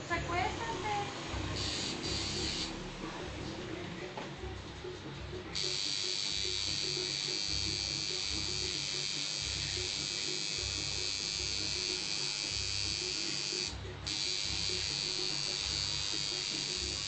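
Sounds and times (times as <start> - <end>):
tattoo machine buzzing: 1.5 - 2.8, 5.5 - 17.0.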